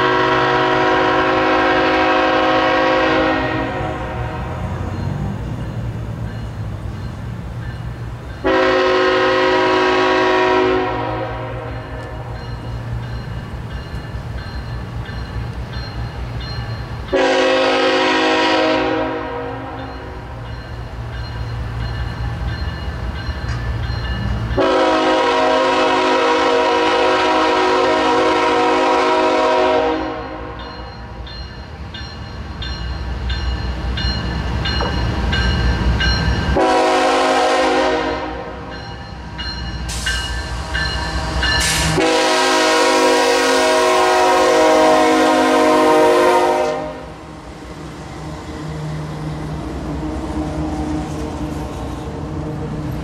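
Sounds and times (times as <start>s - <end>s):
locomotive air horn blasts: 0.0s - 4.6s, 8.4s - 12.2s, 17.1s - 19.9s, 24.6s - 30.6s, 36.6s - 38.7s, 41.5s - 47.2s.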